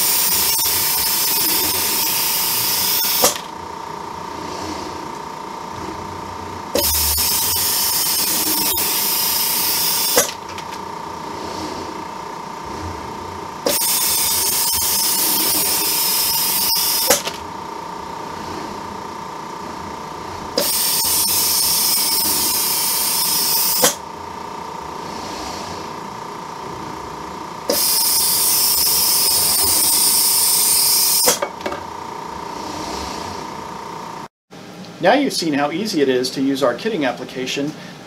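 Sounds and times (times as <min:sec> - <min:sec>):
steady high hum: 0:00.0 - 0:38.0
compressed air hissing: 0:06.8 - 0:10.4, 0:20.6 - 0:24.0, 0:27.7 - 0:31.4.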